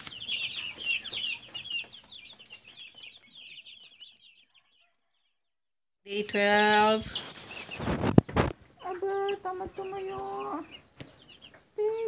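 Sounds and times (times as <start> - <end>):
steady high hiss: 0.0 - 4.2
chicks peeping: 0.0 - 5.2, 6.2 - 12.0.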